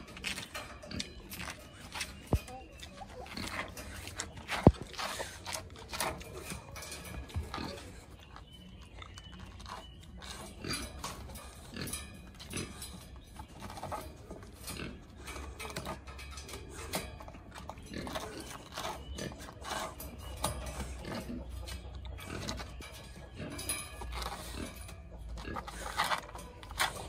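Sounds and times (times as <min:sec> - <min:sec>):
paw scraping on concrete: 0:00.0 - 0:27.0.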